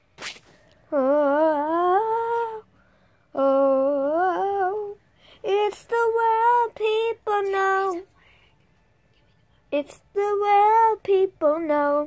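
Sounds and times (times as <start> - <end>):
boy singing wordless notes: 0.9 - 2.6, 3.4 - 8.0, 9.7 - 12.0.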